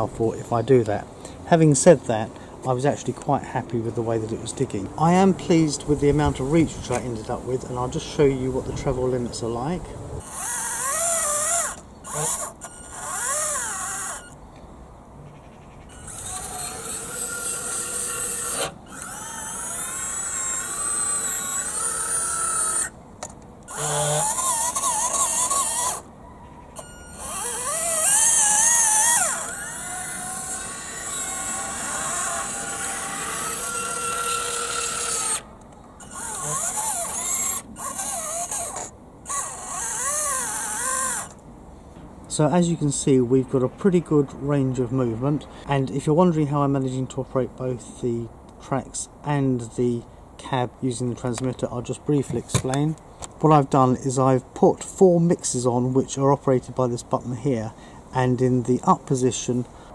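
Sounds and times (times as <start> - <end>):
small electric motors whining: 6.3 - 14.4, 15.8 - 26.1, 26.7 - 41.4.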